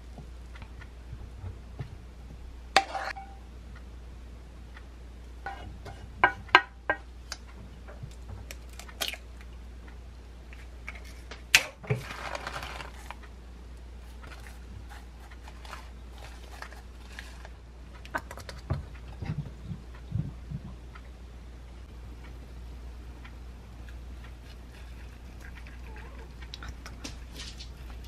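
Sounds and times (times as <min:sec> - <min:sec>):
plastic bag rustling: 0:11.8 - 0:13.2
wooden spoon clacking and scraping: 0:14.0 - 0:19.4.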